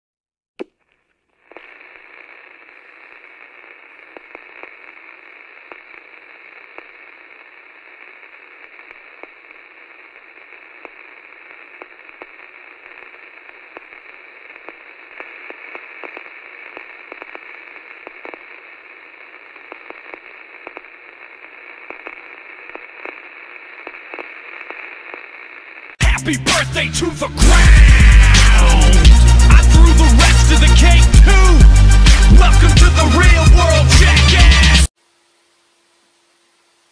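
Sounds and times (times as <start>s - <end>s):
radio static hiss and crackles: 0.6s - 26.0s, 27.8s - 36.9s.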